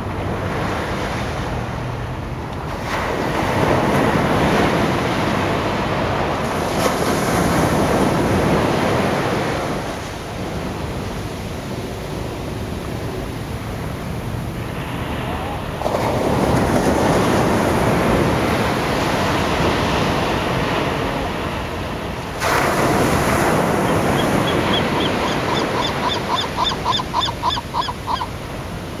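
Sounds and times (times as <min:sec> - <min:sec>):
ocean surf on sand: 0:00.0 - 0:29.0
gull calling: 0:23.7 - 0:28.4.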